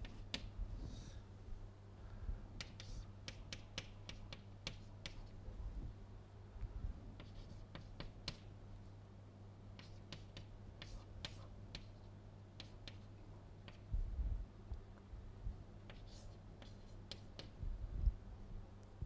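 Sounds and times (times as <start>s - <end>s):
low steady hum: 0.0s - 19.0s
chalk tapping and scraping: 2.6s - 5.3s, 7.2s - 8.5s, 9.8s - 12.0s, 12.6s - 13.1s, 15.9s - 17.6s.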